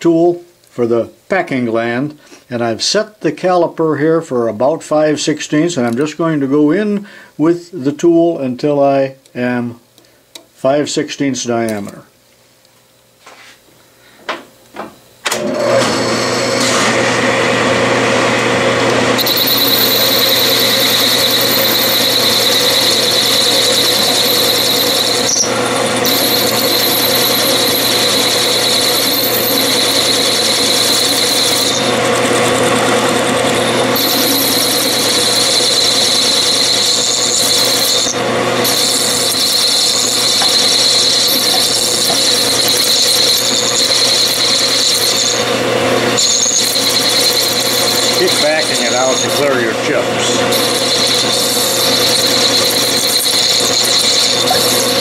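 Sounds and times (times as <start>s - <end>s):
lathe humming: 15.3s - 55.0s
high squeal of metal cutting: 19.2s - 55.0s.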